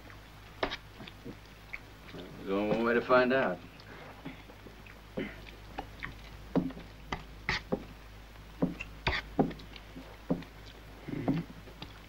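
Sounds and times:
man eating and chewing: 0.0s - 12.0s.

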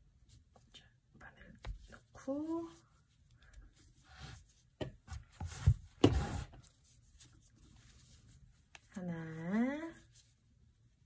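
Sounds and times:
yarn rustling through stitches: 5.4s - 10.6s.

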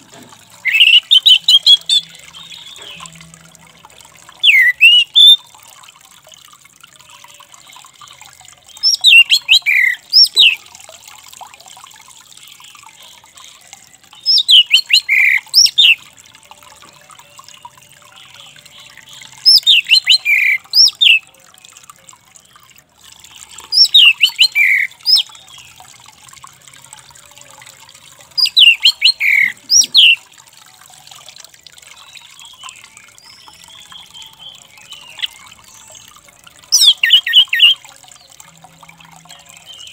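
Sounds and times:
thrush singing: 0.5s - 3.2s, 23.6s - 25.4s, 28.4s - 30.2s, 32.2s - 38.4s.

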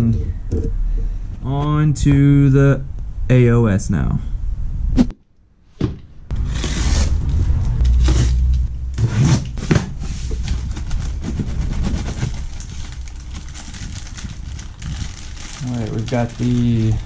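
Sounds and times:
low rumble: 0.0s - 5.2s, 6.2s - 17.0s
packing paper rustling: 9.6s - 17.0s.

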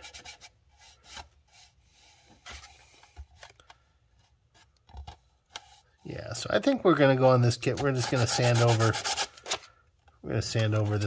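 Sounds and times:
sandpaper rustling and scraping: 7.8s - 9.6s.

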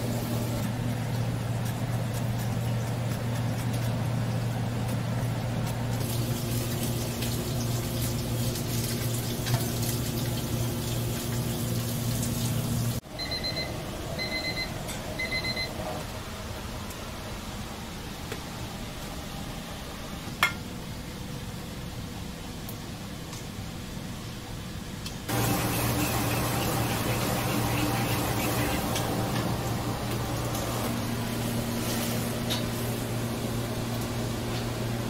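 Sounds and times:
steady hum with hiss: 0.0s - 35.0s
electronic appliance beeps: 13.1s - 16.0s.

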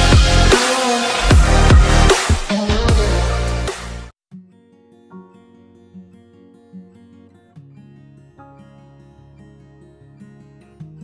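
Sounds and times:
soft acoustic guitar tune: 4.3s - 11.0s.

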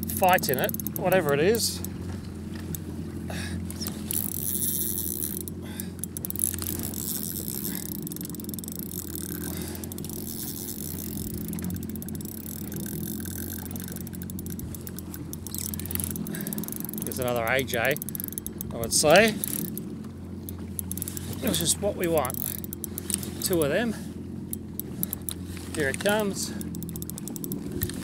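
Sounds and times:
jet ski engine idling: 0.0s - 28.0s.

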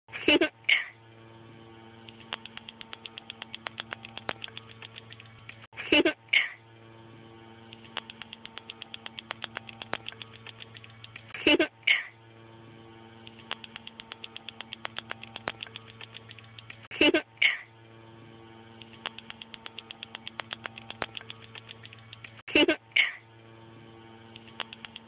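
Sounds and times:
low hum: 0.1s - 25.0s
wet tongue clicking: 2.0s - 5.7s, 7.7s - 11.4s, 13.2s - 17.0s, 18.8s - 22.5s, 24.3s - 25.0s.

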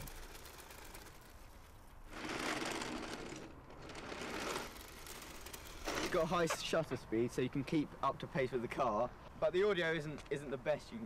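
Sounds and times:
toy car rolling on tarmac: 0.0s - 6.7s.

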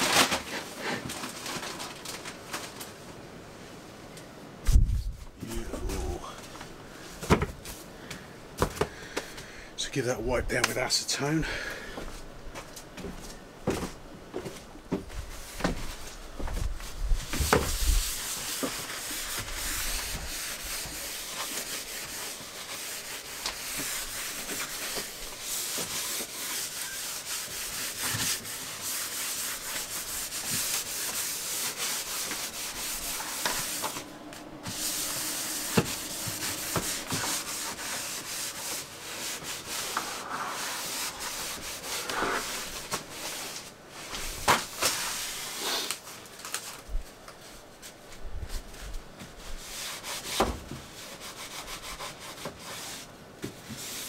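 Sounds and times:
cloth wiping a worktop: 16.8s - 45.9s.

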